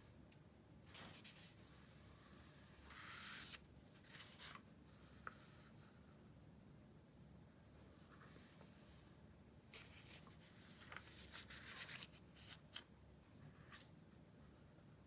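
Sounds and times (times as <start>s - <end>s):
book pages turning: 2.8s - 5.6s, 9.7s - 12.9s.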